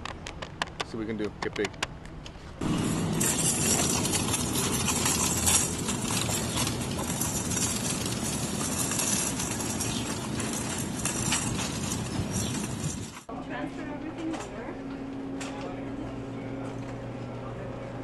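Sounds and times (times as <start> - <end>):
wire shopping cart rattling: 2.6 - 13.3.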